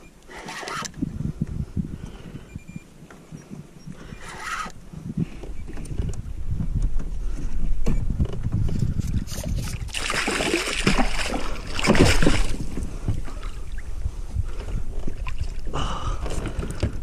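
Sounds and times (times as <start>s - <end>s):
low rumble of water and wind: 0.0s - 17.0s
fish thrashing and splashing: 9.3s - 13.8s.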